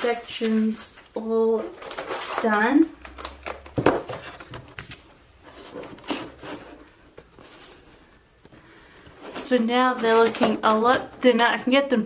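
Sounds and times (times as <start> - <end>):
plastic folders rustling: 0.0 - 11.8.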